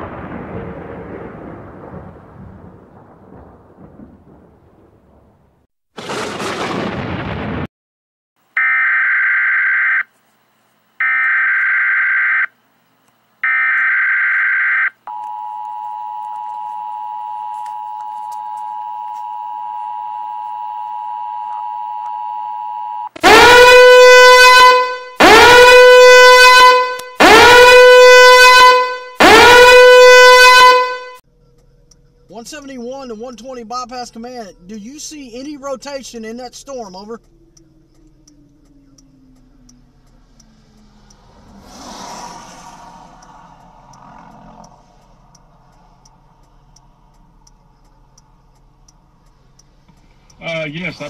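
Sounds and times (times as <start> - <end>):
horn-like alarm blasts: 8.5 - 10.1, 11.0 - 12.5, 13.4 - 31.2
warbling data bursts: 31.4 - 41.5.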